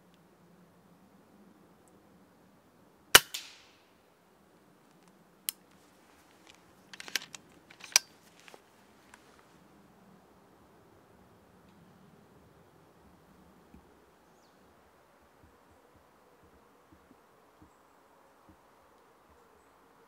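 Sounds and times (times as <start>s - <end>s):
air rifle shot: 3.2s - 3.9s.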